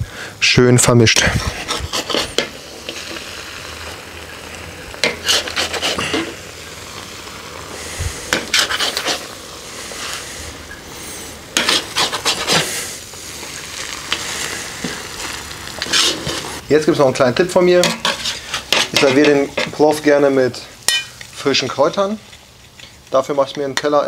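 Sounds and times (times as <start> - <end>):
steady low hiss: 0.0 - 24.0
utensil scraping rice in pot: 1.2 - 4.3, 5.0 - 16.6, 17.6 - 20.1.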